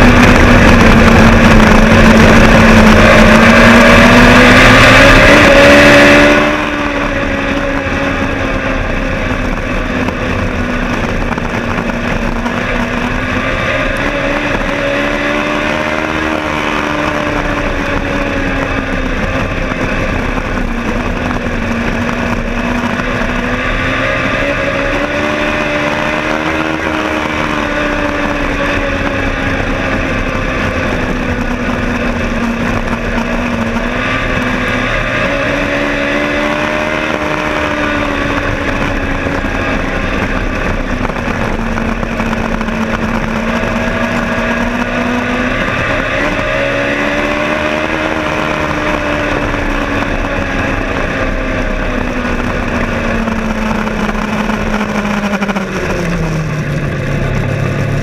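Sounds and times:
race car engine at speed: 0.0 - 58.0.

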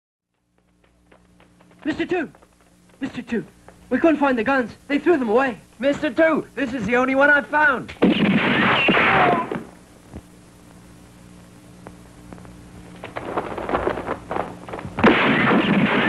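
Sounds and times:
gunshot-like blasts: 8.0 - 9.6, 15.0 - 16.0
low hum: 8.0 - 16.0.

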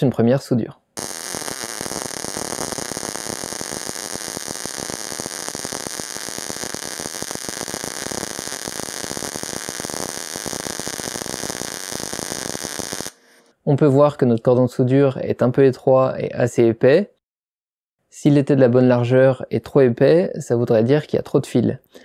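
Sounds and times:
welding arc crackling: 1.0 - 13.2.

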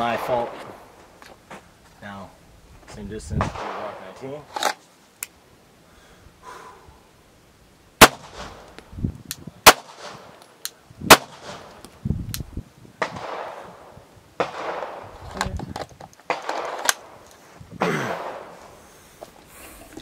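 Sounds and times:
pistol shots: 8.0 - 8.7, 9.6 - 10.3, 11.1 - 11.7, 13.0 - 13.8, 14.4 - 15.0, 16.3 - 17.2, 18.1 - 18.6.

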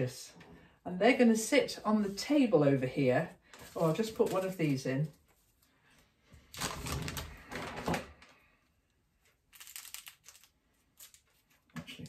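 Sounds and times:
plastic sachet rustling: 3.5 - 5.7, 9.4 - 11.6.

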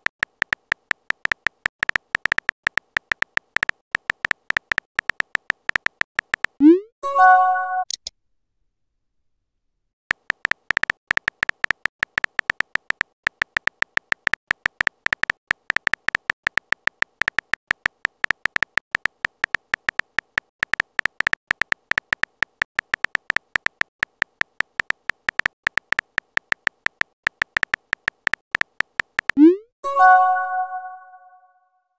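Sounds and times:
keyboard typing clicks: 0.0 - 6.8, 10.1 - 29.6.

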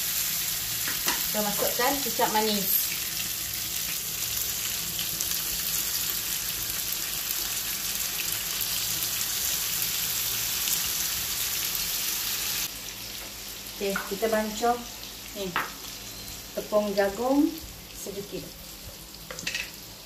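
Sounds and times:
chicken sizzling in hot oil: 0.0 - 20.0.

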